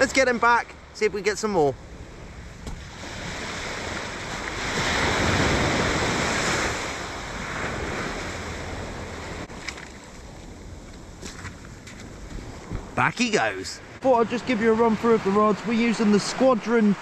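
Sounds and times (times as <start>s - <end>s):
surf breaking on beach: 2.6s - 9.7s, 12.4s - 17.0s.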